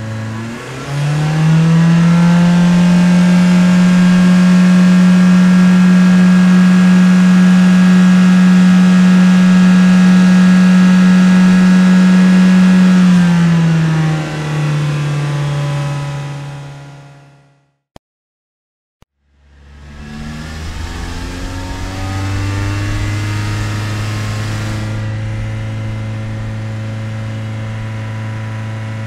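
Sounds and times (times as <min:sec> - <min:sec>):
car engine driving: 0:00.0 - 0:17.5, 0:19.2 - 0:29.0.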